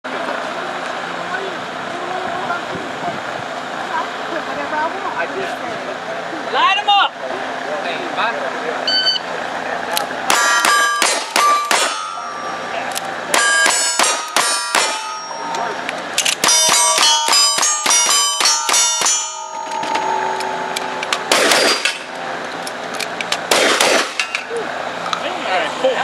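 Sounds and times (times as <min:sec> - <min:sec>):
gunshots: 0:10.3 - 0:12.0, 0:13.3 - 0:15.0, 0:21.2 - 0:22.1, 0:23.4 - 0:24.3
metallic ding of steel targets: 0:10.3 - 0:22.1.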